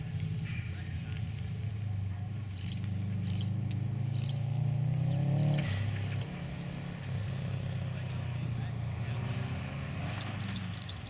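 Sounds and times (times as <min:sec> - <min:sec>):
car engine revving hard: 0:03.0 - 0:11.0.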